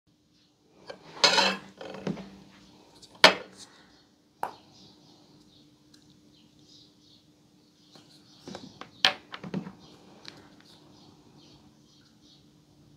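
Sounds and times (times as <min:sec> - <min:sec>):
painting tools scraping on tabletop: 0:00.8 - 0:02.2.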